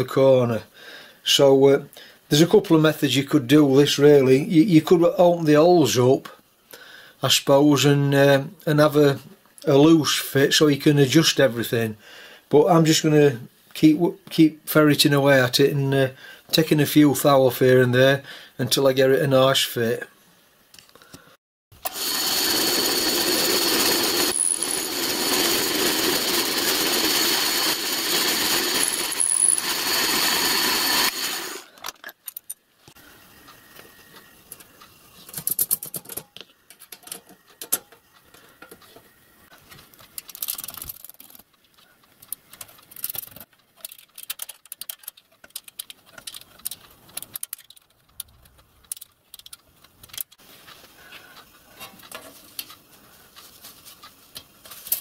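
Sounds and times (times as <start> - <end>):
milling machine cutting brass: 21.8 - 31.7
light clicks and taps of brass parts: 40.0 - 54.5.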